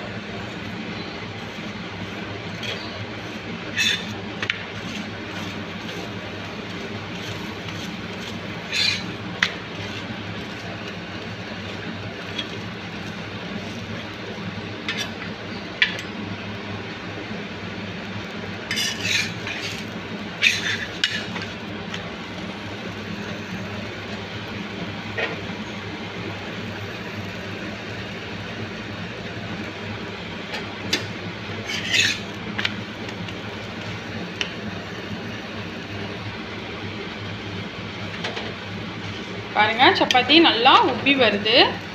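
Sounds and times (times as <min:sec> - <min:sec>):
metal spatula scraping griddle: 0:00.0 - 0:15.4, 0:18.6 - 0:21.9, 0:25.1 - 0:25.5, 0:30.8 - 0:32.7
steady background hum: 0:00.0 - 0:41.9.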